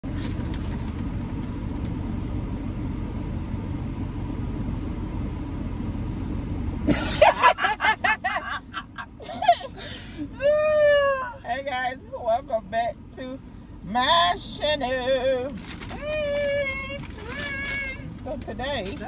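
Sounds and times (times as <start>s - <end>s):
car engine and air conditioning rumble: 0.0s - 19.0s
woman laughing loudly: 6.9s - 11.4s.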